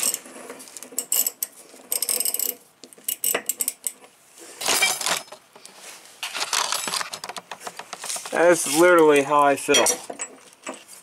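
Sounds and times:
steel tools clinking: 4.6s - 5.4s, 8.4s - 10.8s.

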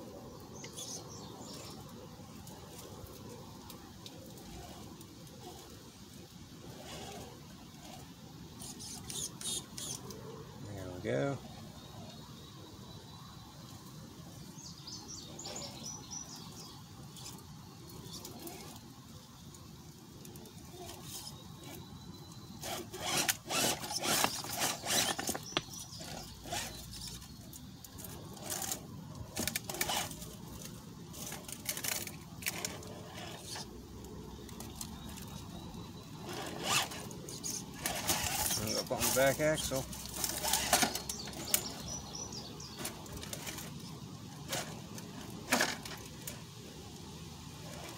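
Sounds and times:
toy car scraping and knocking on rock: 4.3s - 5.8s, 6.6s - 10.2s, 15.1s - 18.9s, 20.2s - 21.9s, 22.5s - 35.6s, 36.2s - 46.4s, 47.6s - 47.9s.

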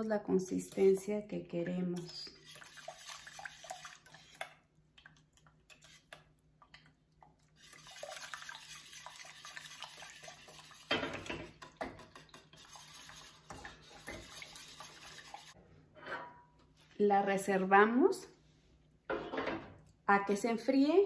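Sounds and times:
whisk scraping metal pan: 2.0s - 4.4s, 8.6s - 15.6s.

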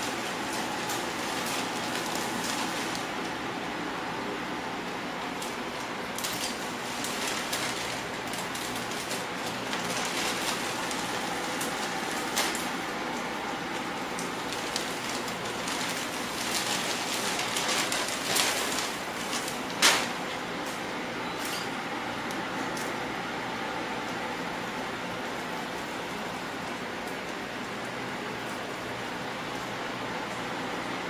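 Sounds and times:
plastic bags crinkling: 0.0s - 3.4s, 5.4s - 20.4s.

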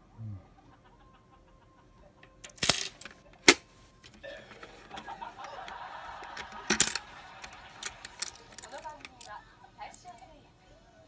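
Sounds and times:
coins clinking on plastic: 2.3s - 3.6s, 4.4s - 10.2s
coins rattling: 2.4s - 3.6s, 6.2s - 10.2s.

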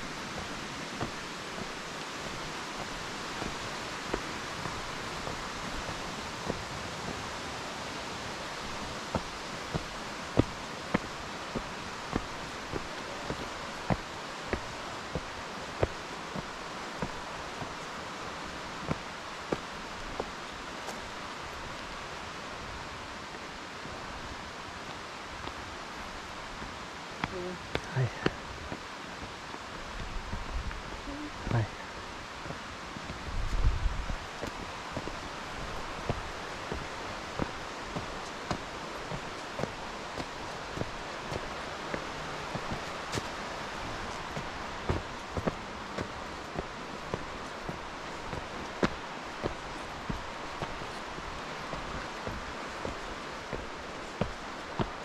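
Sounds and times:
flowing water: 0.0s - 55.0s
footsteps on dirt trail: 0.0s - 55.0s.

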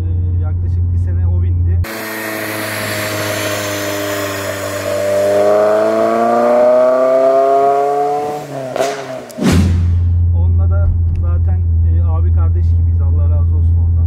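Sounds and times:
car engine accelerating hard: 1.8s - 10.2s.

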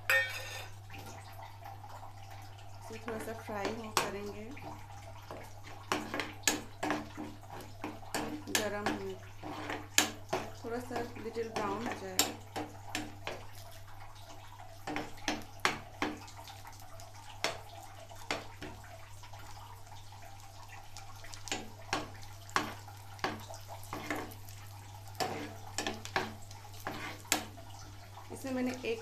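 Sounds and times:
steel ladle scraping pan: 0.0s - 0.8s, 5.3s - 13.4s, 22.5s - 24.4s, 25.2s - 27.6s
nuts sizzling in ghee: 2.8s - 29.0s.

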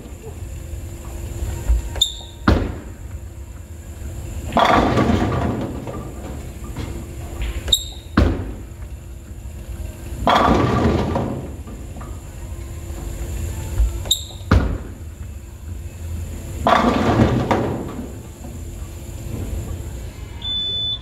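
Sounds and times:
bowling pins clattering: 1.1s - 12.3s, 13.0s - 15.5s, 16.4s - 20.1s
bowling ball thud and roll: 1.7s - 3.2s, 4.4s - 8.9s, 10.2s - 12.2s, 14.3s - 15.2s, 16.6s - 18.6s.

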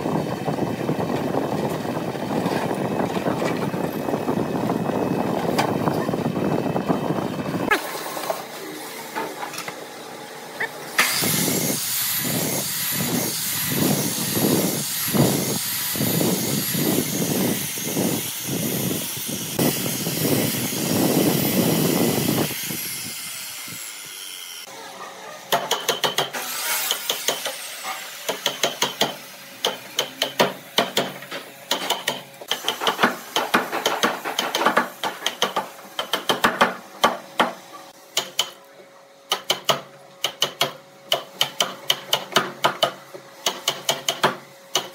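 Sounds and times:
miter saw cutting wood: 10.6s - 24.8s, 26.3s - 30.2s.

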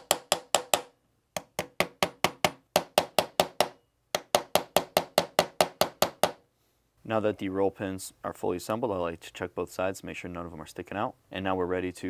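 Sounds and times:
small hammer tapping a punch: 0.0s - 6.4s.

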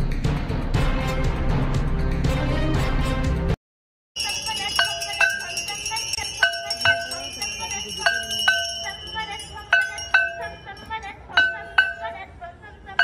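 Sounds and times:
bells jangling: 4.2s - 12.3s
low bell strokes: 4.2s - 12.3s.

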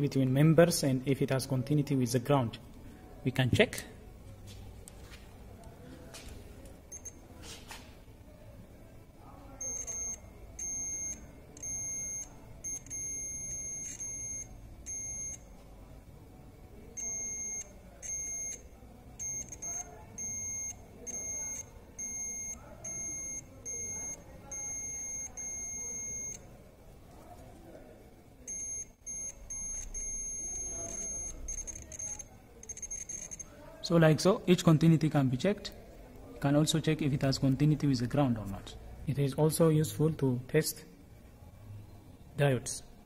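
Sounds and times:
multimeter continuity beeps: 6.8s - 7.3s, 9.4s - 15.6s, 16.5s - 26.6s, 28.4s - 33.6s.

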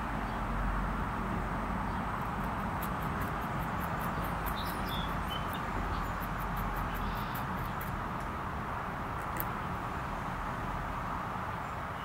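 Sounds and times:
outdoor background noise: 0.0s - 12.0s
fast faint high ticking: 2.2s - 8.4s.

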